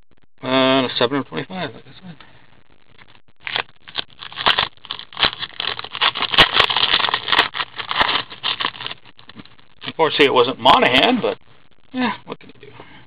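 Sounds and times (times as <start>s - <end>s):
foil wrapper tearing and crinkling: 3.4s - 10.0s.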